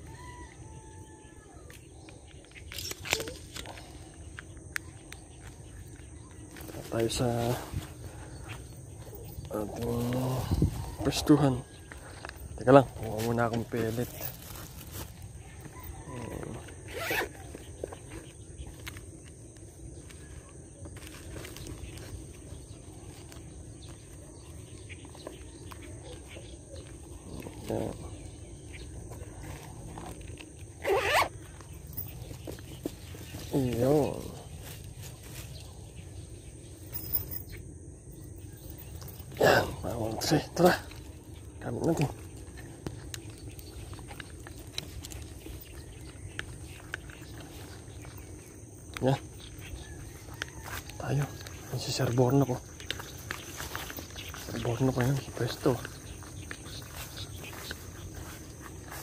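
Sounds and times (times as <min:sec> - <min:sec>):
wind rumble on microphone: 0:10.2 - 0:11.3.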